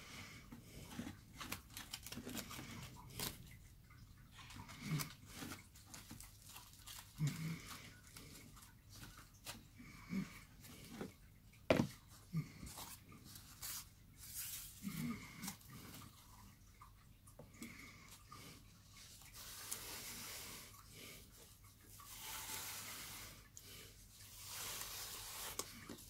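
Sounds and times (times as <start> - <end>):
aluminium foil crinkling: 0.9 - 3.6, 4.8 - 9.6.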